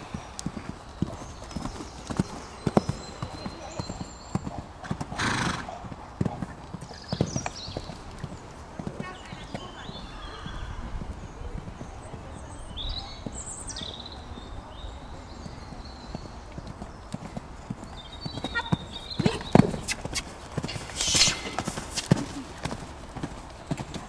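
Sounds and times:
horse hooves cantering on sand: 0:00.0 - 0:24.0.

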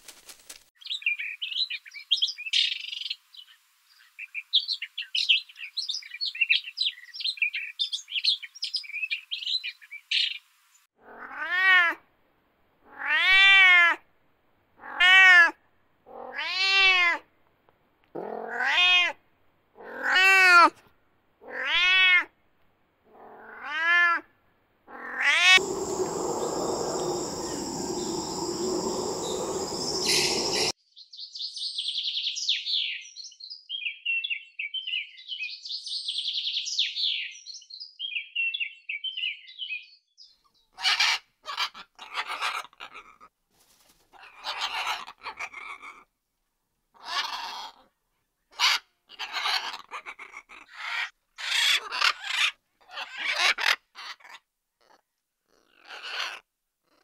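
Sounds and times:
animal crying out: 0:11.0 - 0:12.0, 0:18.2 - 0:19.2, 0:24.9 - 0:30.7
high steady whistle: 0:25.6 - 0:30.8
rushing noise: 0:25.6 - 0:30.8
bird chirping: 0:25.6 - 0:40.7.

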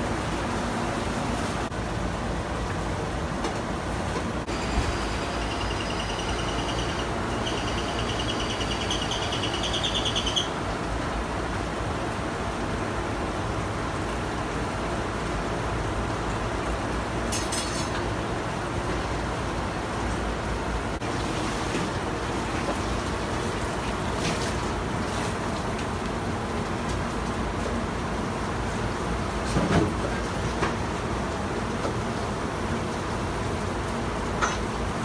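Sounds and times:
high rapidly pulsing chirp: 0:04.5 - 0:10.5.

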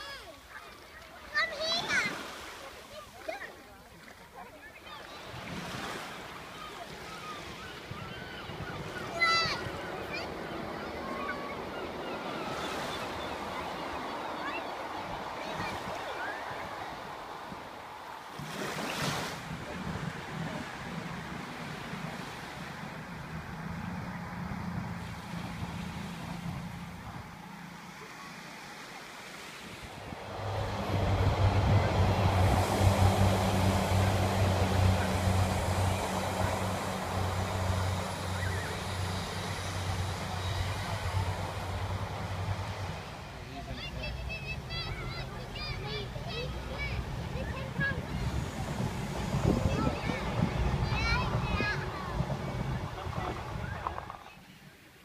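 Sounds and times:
wind and surf hiss: 0:00.0 - 0:55.0
diesel train engine drone: 0:30.0 - 0:54.2.

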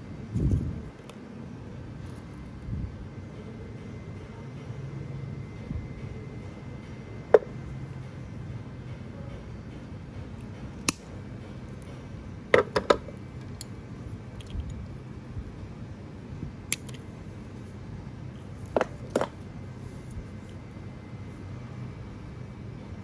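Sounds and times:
low steady hum: 0:00.0 - 0:23.0
metal clicks of pliers and wire: 0:10.4 - 0:11.1.

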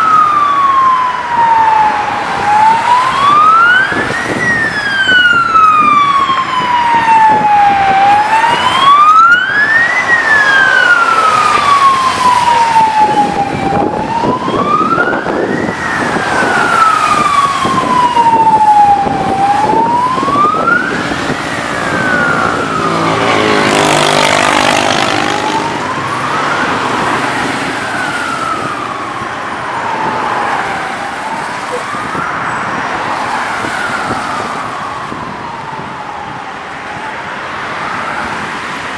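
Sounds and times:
emergency siren wailing: 0:00.0 - 0:38.9
hum of slow traffic: 0:00.0 - 0:38.9
car passing on wet road: 0:20.5 - 0:28.8.

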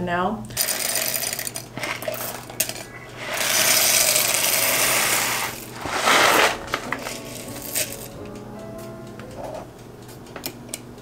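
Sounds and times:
packets rustling in canister: 0:01.4 - 0:08.0.

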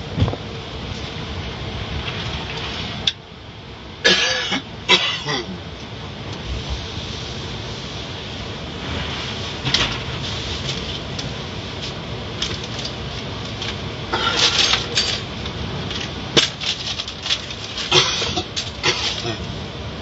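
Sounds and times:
sharp clicks and clatters: 0:09.6 - 0:19.3.

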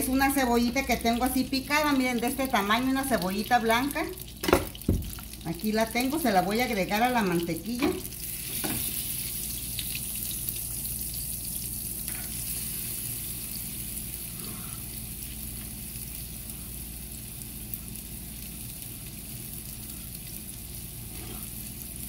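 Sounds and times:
onion sizzling in butter: 0:00.0 - 0:22.0.

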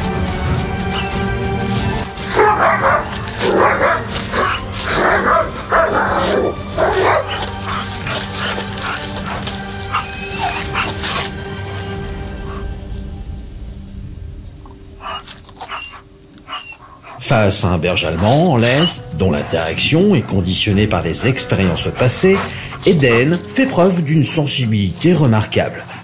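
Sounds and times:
background music: 0:00.0 - 0:26.0
dog barking: 0:00.9 - 0:01.2, 0:02.2 - 0:12.7, 0:15.0 - 0:17.2, 0:21.2 - 0:23.4.

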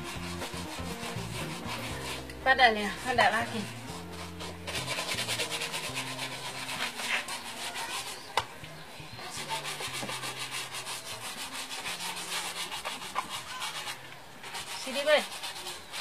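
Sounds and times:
brush scrubbing leather shoe: 0:00.0 - 0:08.4, 0:09.4 - 0:16.0.

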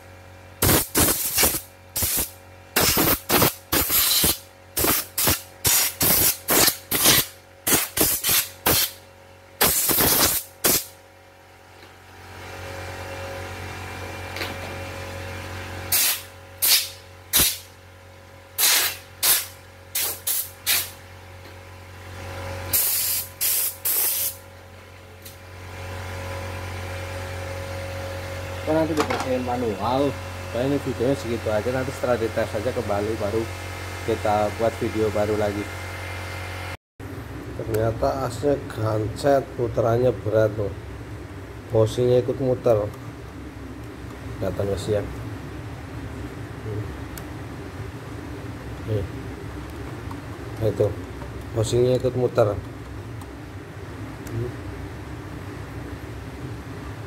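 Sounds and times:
steady low hum: 0:00.0 - 0:57.0
compressed air blasts: 0:00.6 - 0:09.0, 0:09.6 - 0:11.0, 0:15.9 - 0:17.7, 0:18.6 - 0:21.0, 0:22.7 - 0:24.4.

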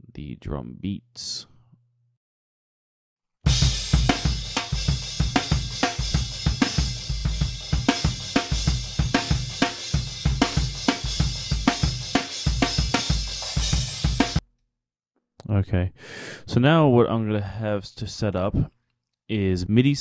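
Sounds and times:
drum kit playing beat: 0:03.5 - 0:14.4.

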